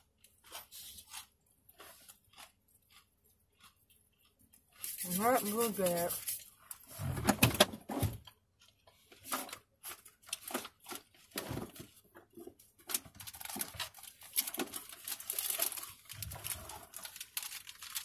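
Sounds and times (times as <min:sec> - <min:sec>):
paper wrappers crinkling: 0:04.8 - 0:06.8, 0:12.8 - 0:18.0.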